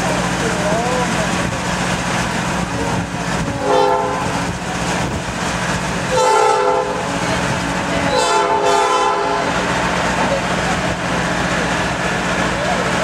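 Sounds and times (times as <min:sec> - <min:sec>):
moving train rumble: 0:00.0 - 0:13.0
locomotive horn blasts: 0:02.7 - 0:04.6, 0:06.1 - 0:09.6.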